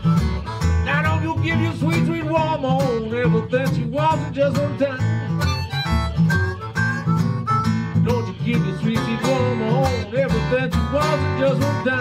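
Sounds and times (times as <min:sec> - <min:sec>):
harmonica wailing solo: 0:00.0 - 0:00.8, 0:05.0 - 0:10.1
strummed acoustic guitar: 0:00.0 - 0:12.0.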